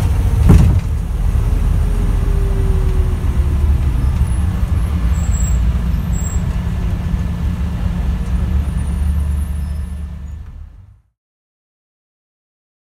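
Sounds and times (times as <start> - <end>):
leaking turbo noise: 0.0 - 10.0
bus diesel engine rumble: 0.0 - 11.1.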